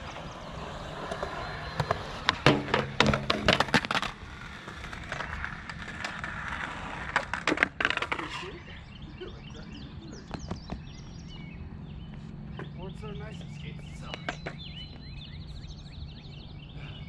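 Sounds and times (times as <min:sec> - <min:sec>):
skateboard grinding on metal rail: 0:00.0 - 0:08.5
skateboard wheels rolling on concrete: 0:00.0 - 0:15.6
skateboard clacks on concrete: 0:01.0 - 0:08.4.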